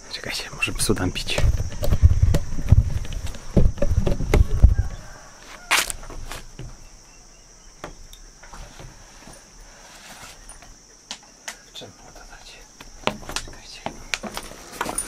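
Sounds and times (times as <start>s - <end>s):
high insect hum: 0.0s - 15.0s
footsteps on wooden boards: 1.2s - 6.9s, 12.8s - 15.0s.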